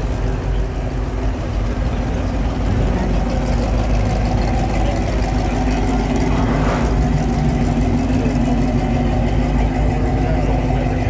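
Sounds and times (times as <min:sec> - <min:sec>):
car engine cruising past: 0:02.5 - 0:09.7.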